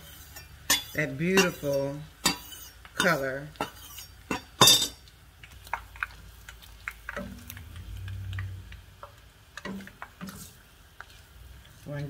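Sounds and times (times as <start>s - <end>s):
chilies popping in hot oil: 0.0s - 12.0s
low hum: 7.2s - 9.0s.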